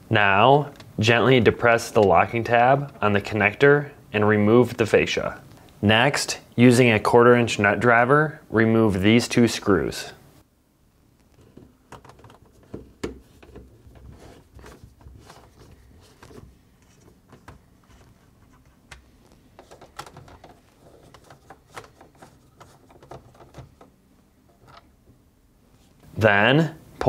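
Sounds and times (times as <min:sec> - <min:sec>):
plastic parts being handled: 0:11.2 - 0:25.2.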